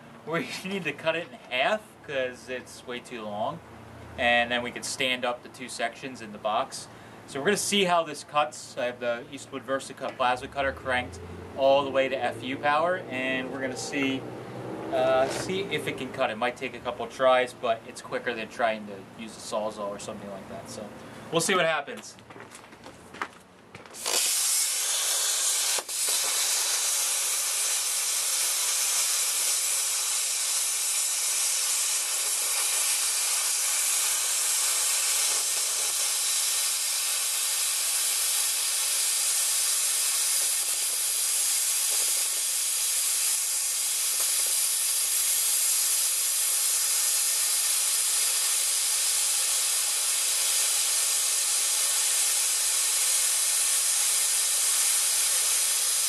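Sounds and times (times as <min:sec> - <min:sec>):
plasma cutter hissing: 0:24.0 - 0:56.0.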